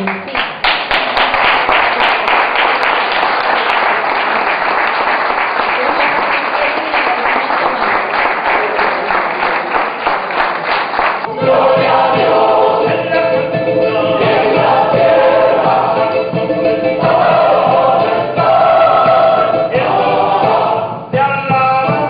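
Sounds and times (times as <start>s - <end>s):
audience applauding: 0.0s - 12.1s
charango playing: 11.3s - 20.5s
mixed choir singing: 11.3s - 21.2s.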